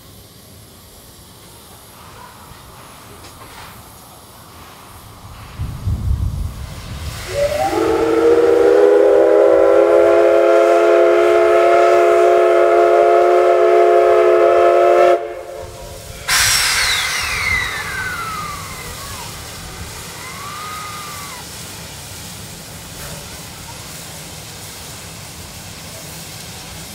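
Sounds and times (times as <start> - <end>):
loud hiss of steam: 0.0 - 26.9
steam whistle chord: 7.3 - 19.2.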